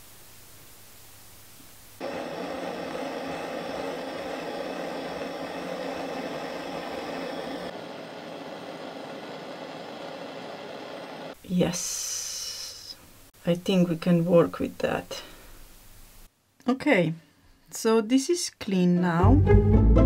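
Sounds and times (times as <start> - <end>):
gas torch flame roaring: 2.0 - 12.8.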